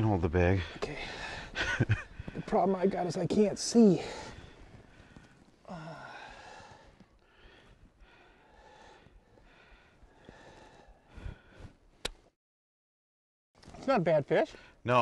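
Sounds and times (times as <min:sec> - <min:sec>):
faint breathing: 0:00.6 - 0:02.6, 0:03.9 - 0:11.9.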